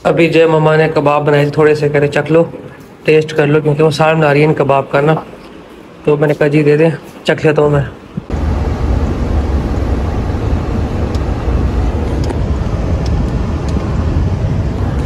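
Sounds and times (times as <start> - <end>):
car road and engine noise: 8.3 - 15.0.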